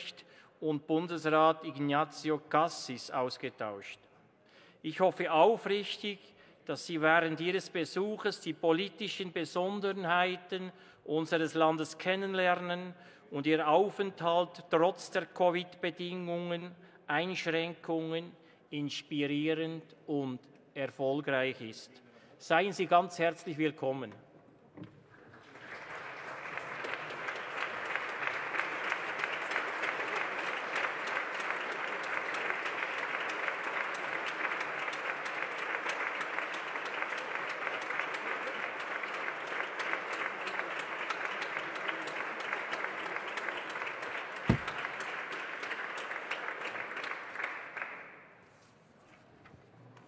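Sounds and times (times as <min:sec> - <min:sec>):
crowd clapping: 0:25.0 - 0:48.3
single thump: 0:44.5 - 0:44.8.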